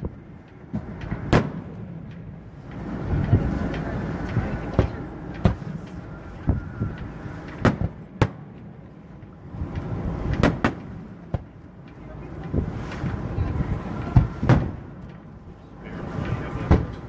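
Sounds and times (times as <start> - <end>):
fireworks bangs: 0.0 - 2.1, 4.4 - 8.8, 9.9 - 11.5, 14.0 - 14.8, 16.2 - 17.0
low rumble: 0.0 - 17.0.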